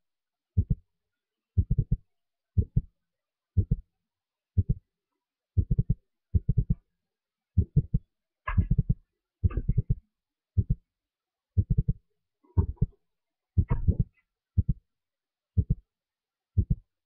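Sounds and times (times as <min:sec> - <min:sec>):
low muffled thumps: 0:07.6 - 0:10.0, 0:13.6 - 0:14.8.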